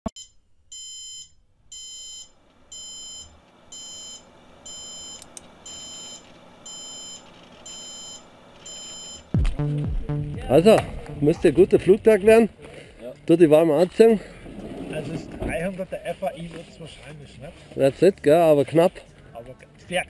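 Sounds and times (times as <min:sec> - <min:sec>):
electronic alarm beeping: 0:00.1 - 0:09.8.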